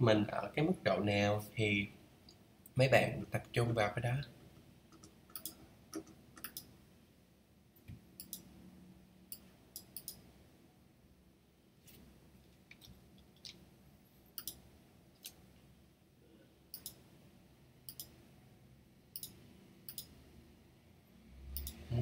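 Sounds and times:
computer mouse clicks: 0:04.9 - 0:06.7, 0:07.9 - 0:08.5, 0:09.3 - 0:10.2, 0:14.4 - 0:14.6, 0:16.7 - 0:17.0, 0:17.9 - 0:18.2, 0:19.2 - 0:20.2, 0:21.6 - 0:21.8.

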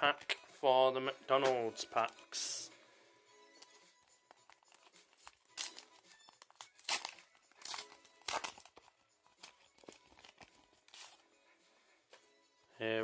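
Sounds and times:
wrapper tearing and crinkling: 0:04.4 - 0:11.2.

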